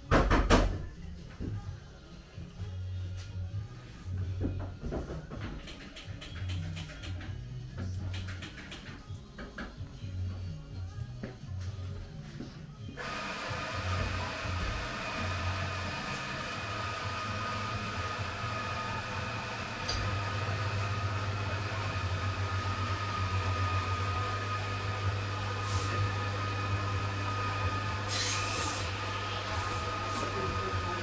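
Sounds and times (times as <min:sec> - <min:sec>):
low mechanical hum: 0:09.1 - 0:31.0.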